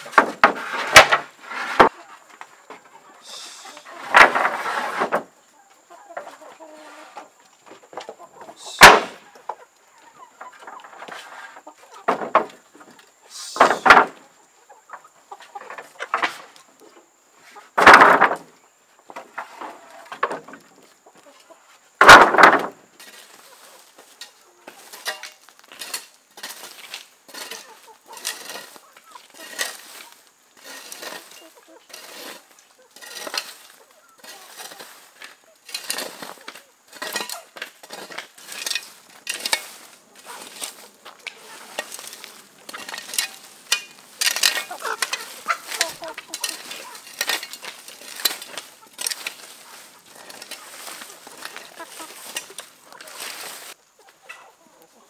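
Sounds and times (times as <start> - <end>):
wooden planks knocking and clattering: 0.0 - 3.0, 4.0 - 5.3, 7.7 - 14.3, 14.9 - 17.1, 17.7 - 20.9, 22.0 - 23.4, 33.0 - 53.8
chickens clucking: 0.0 - 55.0
rake and hoe scraping dirt: 0.0 - 55.0.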